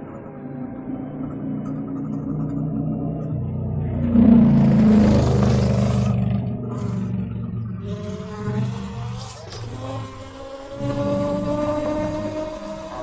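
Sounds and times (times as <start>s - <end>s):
wind and road noise: 0.0s - 13.0s
electric motor low hum: 5.7s - 13.0s.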